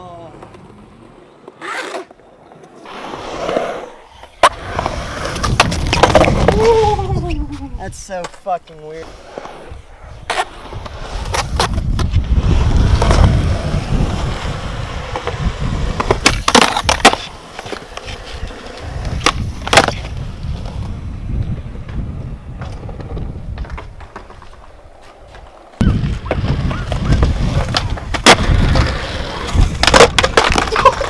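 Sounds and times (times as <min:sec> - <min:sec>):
skateboard wheels rolling on concrete: 0:00.0 - 0:31.0
skateboard clacking on concrete: 0:04.3 - 0:08.8, 0:15.0 - 0:20.2, 0:22.6 - 0:31.0.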